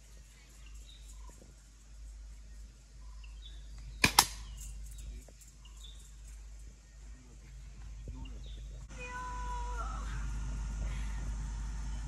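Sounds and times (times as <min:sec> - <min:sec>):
arrow striking target: 0:04.0 - 0:04.5.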